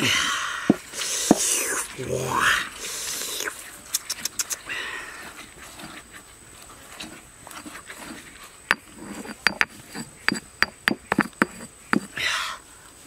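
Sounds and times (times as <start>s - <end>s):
pestle knocking in stone mortar: 8.7s - 12.1s
pestle mashing chilies: 8.7s - 12.2s.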